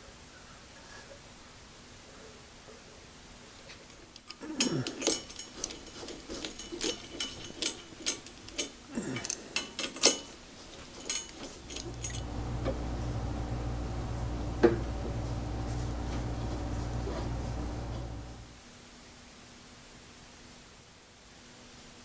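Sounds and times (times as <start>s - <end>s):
metal tools clinking: 4.3s - 12.6s
steady low hum: 11.6s - 18.6s.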